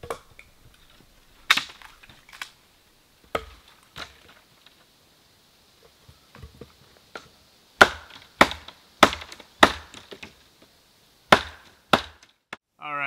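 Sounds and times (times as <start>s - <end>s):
axe chopping firewood on stump: 0.0s - 0.5s, 3.2s - 4.3s, 7.1s - 10.4s, 11.3s - 12.6s.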